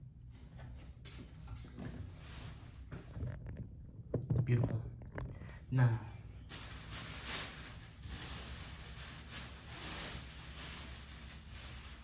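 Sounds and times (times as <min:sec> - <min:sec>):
objects handled by hand rustling: 0:06.5 - 0:12.0.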